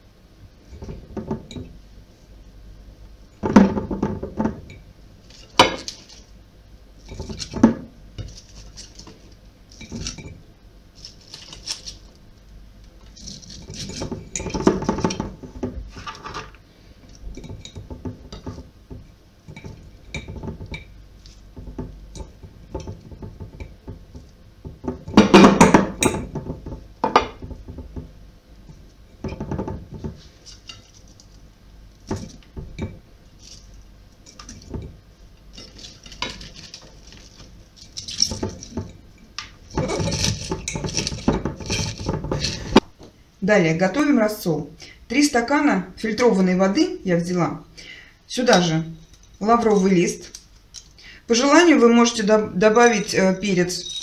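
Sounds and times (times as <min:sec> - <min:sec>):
cabbage rustling: 0:10.9 - 0:12.2.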